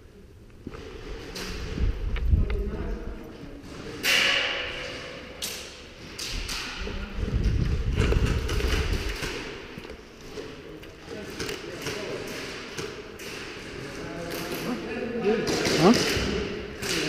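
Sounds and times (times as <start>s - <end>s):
sharp echoing cracks: 3.7s - 7.0s, 8.1s - 10.3s, 11.0s - 17.0s.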